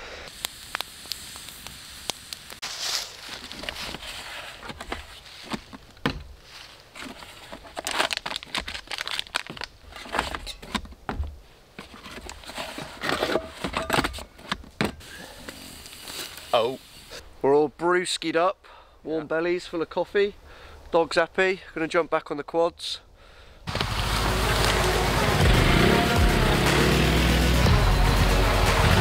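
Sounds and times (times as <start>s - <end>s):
campfire crackling: 0.0s - 10.1s, 15.0s - 17.4s, 23.7s - 27.1s
coffee packet crinkling: 2.6s - 5.5s, 6.6s - 10.5s
camping gear knocks: 4.6s - 6.4s, 10.0s - 11.4s.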